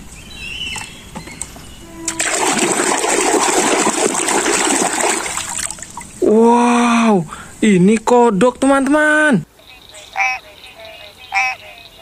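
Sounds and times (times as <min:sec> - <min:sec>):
water splashing: 0:01.9 - 0:06.3.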